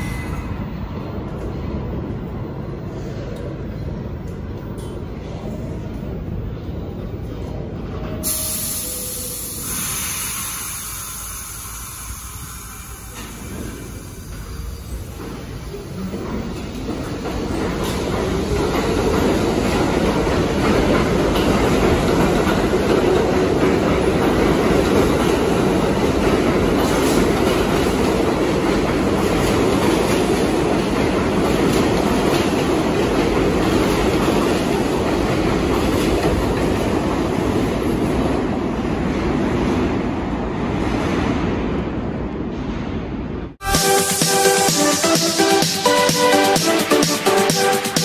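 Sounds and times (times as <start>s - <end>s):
subway train wheels on rail: 0.0s - 48.0s
clickety-clack over rail joints: 13.2s - 40.0s.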